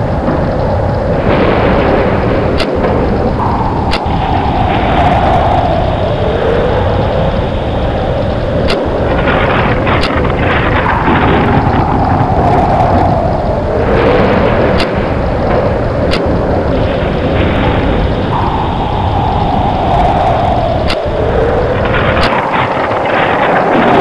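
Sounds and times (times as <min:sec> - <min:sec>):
howling storm wind roar: 0:00.0 - 0:24.0
faint sharp clicks: 0:20.8 - 0:21.0.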